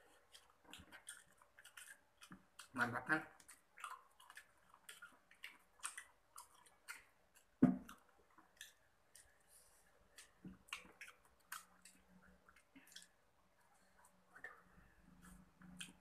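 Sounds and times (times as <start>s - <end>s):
chewing crispy fried chicken: 0.0s - 16.0s.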